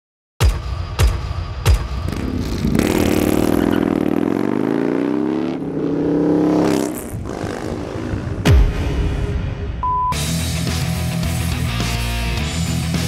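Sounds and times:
motorcycle engine revving: 2.0 - 8.8
heavy impact hits: 8.3 - 9.8.

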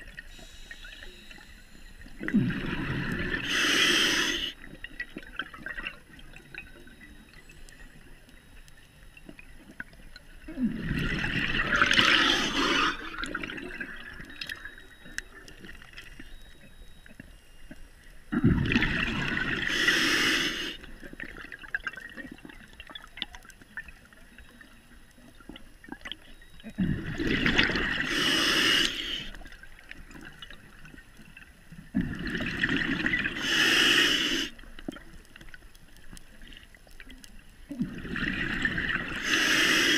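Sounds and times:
underwater regulator breathing bubbles: 2.1 - 4.7, 10.5 - 14.6, 18.4 - 21.3, 26.7 - 29.4, 32.0 - 34.7, 37.8 - 39.9.

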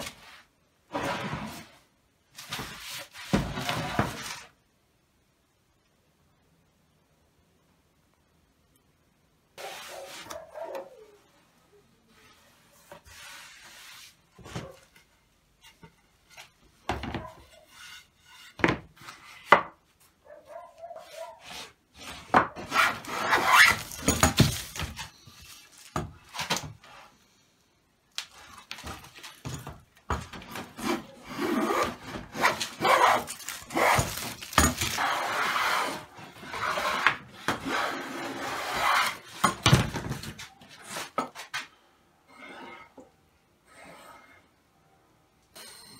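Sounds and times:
knocks of wood on a workbench: 18.5 - 18.9.

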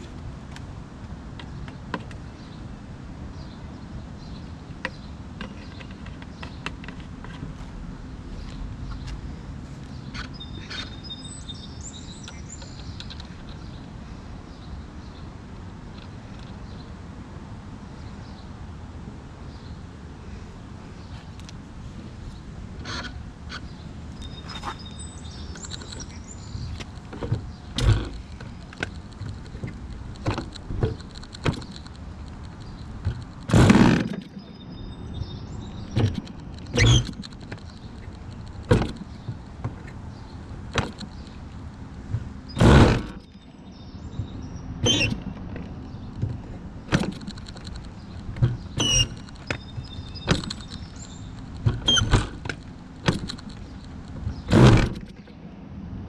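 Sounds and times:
loud thuds: 33.0 - 34.2, 42.1 - 43.3.

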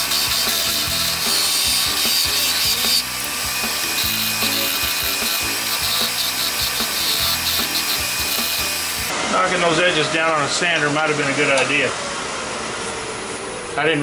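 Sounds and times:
lathe tool scraping wood: 0.0 - 9.2.

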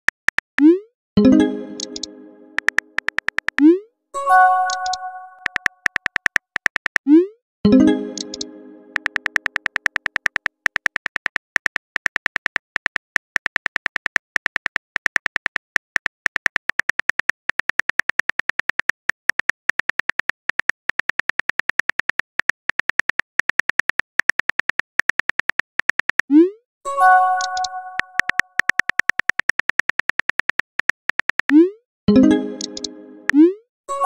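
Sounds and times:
phone keyboard clicks: 1.8 - 3.6, 4.7 - 7.1, 8.1 - 26.3, 27.4 - 31.6.

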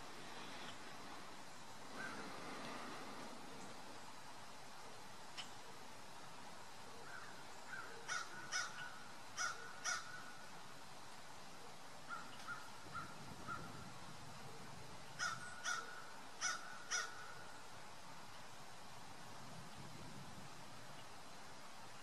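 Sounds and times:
bird calling: 1.9 - 2.9, 6.9 - 10.4, 12.0 - 13.8, 15.2 - 17.6.

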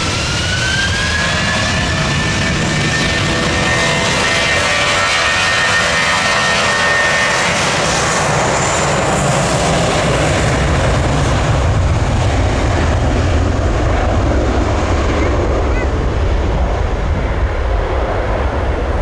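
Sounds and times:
jet engines at takeoff thrust: 0.0 - 19.0.

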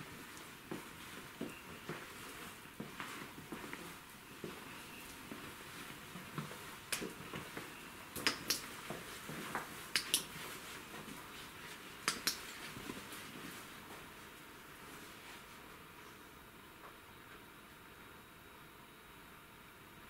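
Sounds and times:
light sharp clicks: 8.2 - 8.7, 9.9 - 10.3, 12.0 - 12.6.

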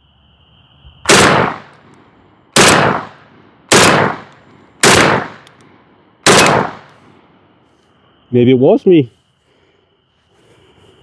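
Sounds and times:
loud shotgun shots with echo: 1.1 - 1.7, 2.6 - 5.4, 6.2 - 6.9.

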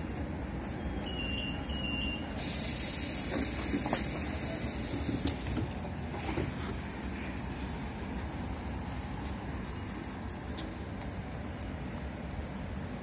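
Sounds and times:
compressed air hissing: 2.4 - 5.6.

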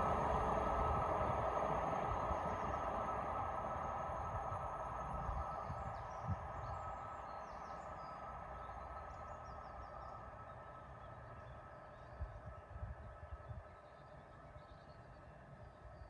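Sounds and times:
diesel train receding: 0.0 - 11.8.

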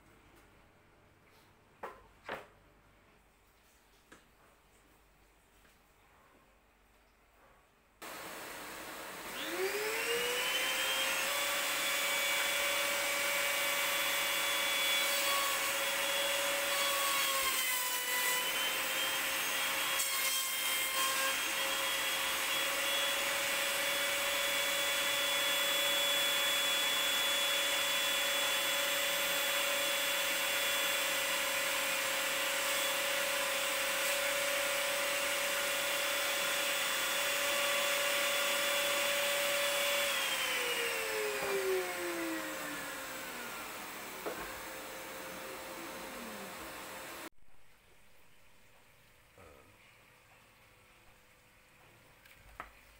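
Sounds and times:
table saw motor whine: 8.0 - 19.9, 20.9 - 47.3.

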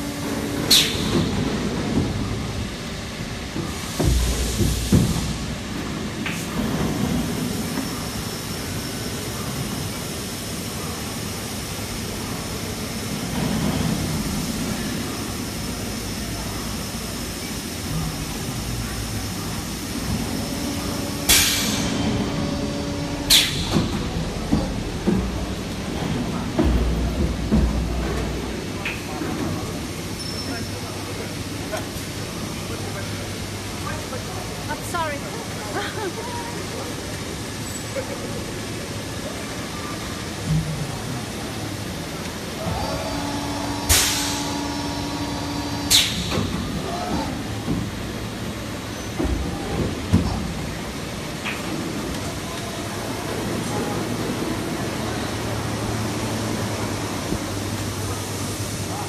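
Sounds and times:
machine steady mechanical noise: 0.0 - 59.0
machine humming: 12.0 - 30.1, 42.4 - 48.8
sharp mechanical bangs: 21.2 - 25.6.

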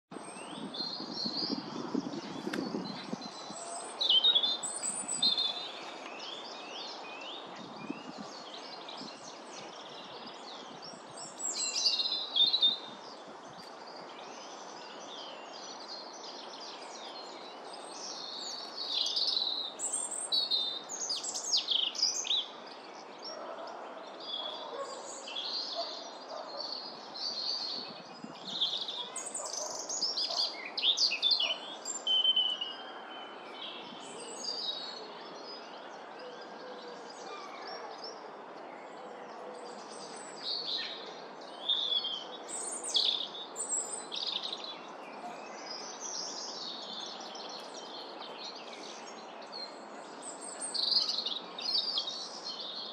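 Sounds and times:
outdoor background noise: 0.1 - 52.9.

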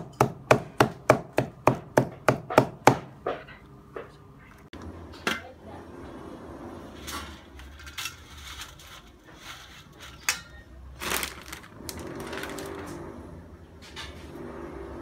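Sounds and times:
dry noodles rustling and crackling: 10.9 - 13.0.

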